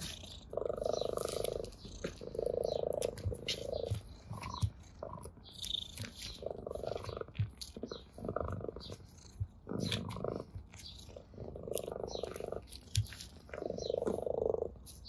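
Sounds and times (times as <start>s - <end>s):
dry grass clicking and crackling: 0.0s - 4.6s, 9.8s - 15.0s
cat purring: 0.0s - 15.0s.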